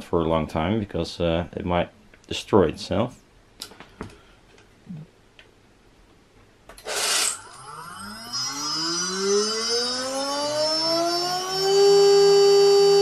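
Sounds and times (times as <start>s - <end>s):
spindle motor whine: 6.8s - 13.0s.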